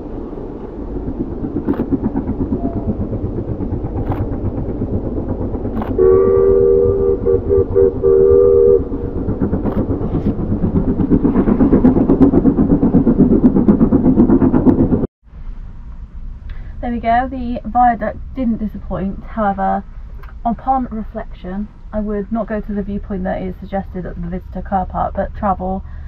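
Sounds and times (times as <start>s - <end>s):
steam locomotive chuffing: 0.0s - 15.1s
steam whistle two-note chord: 6.0s - 8.8s.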